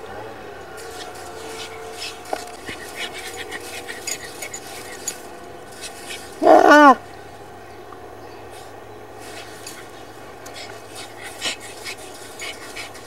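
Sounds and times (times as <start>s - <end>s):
paws scratching sand: 0.7s - 7.0s, 8.5s - 13.0s
puppy barking: 5.9s - 7.0s.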